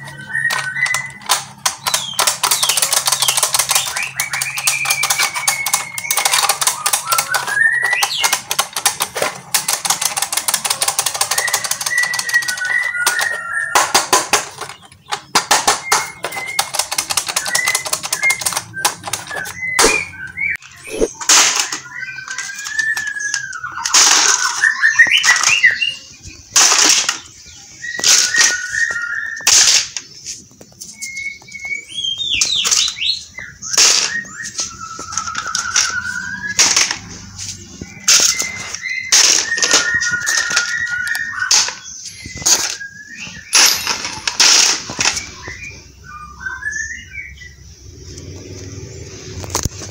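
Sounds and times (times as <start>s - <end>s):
toy rifle firing sound effect: 0.1s - 20.2s, 20.9s - 23.1s, 23.8s - 25.7s, 26.5s - 27.3s, 28.0s - 28.8s, 29.4s - 30.0s, 33.7s - 34.3s, 35.0s - 37.1s, 38.0s - 41.9s, 43.5s - 45.4s.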